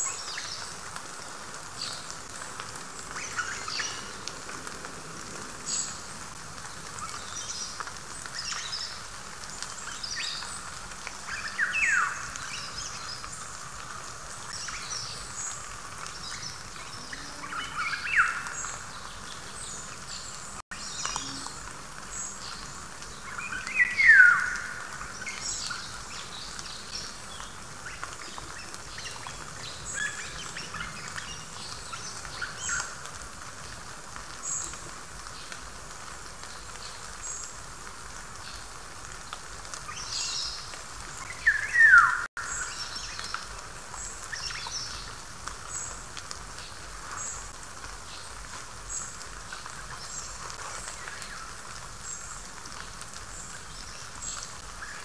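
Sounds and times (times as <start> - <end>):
light rain pattering: 0.0 - 55.0
songbirds chirping: 0.0 - 55.0
descending whistled bird calls: 41.2 - 42.9.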